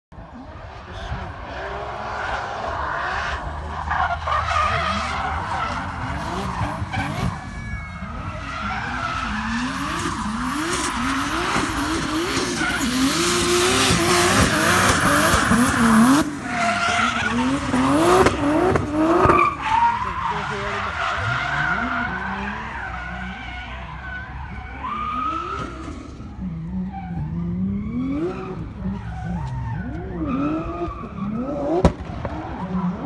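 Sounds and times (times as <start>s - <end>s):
car engine revving: 0.2s - 33.0s
tyres screeching: 1.5s - 26.1s.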